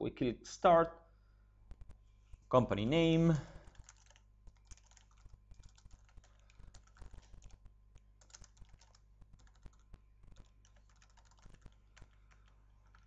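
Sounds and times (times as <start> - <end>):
typing on computer keyboard: 3.6 - 13.0.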